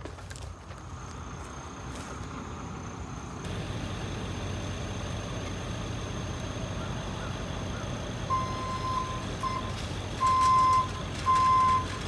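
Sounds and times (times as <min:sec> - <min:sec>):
footstep: 0:00.0 - 0:02.5, 0:09.1 - 0:12.0
truck engine idling: 0:00.0 - 0:12.0.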